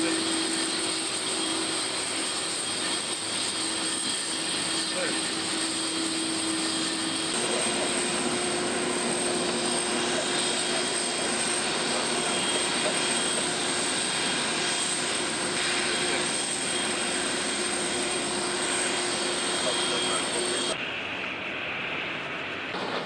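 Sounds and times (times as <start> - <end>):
jet engines running: 0.0 - 23.0.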